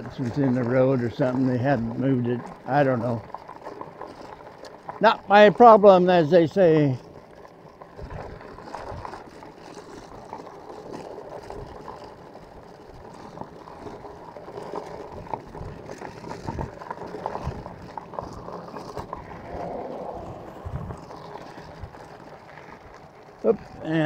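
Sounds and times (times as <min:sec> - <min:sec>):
bicycle clicks and rattles: 0:00.0 - 0:24.0
tyre rumble: 0:00.0 - 0:24.0
wind buffeting microphone: 0:15.1 - 0:24.0.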